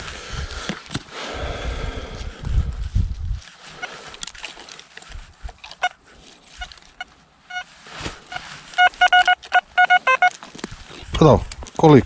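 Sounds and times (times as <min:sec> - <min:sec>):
handling and digging scuffs: 0:03.0 - 0:12.0
metal detector beeps: 0:05.7 - 0:06.0, 0:06.6 - 0:10.4.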